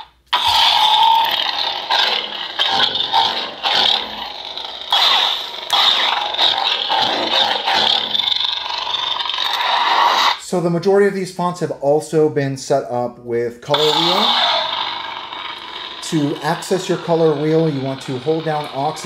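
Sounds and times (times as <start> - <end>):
lightsaber buzzing hum: 0.0 - 10.4, 13.7 - 19.0.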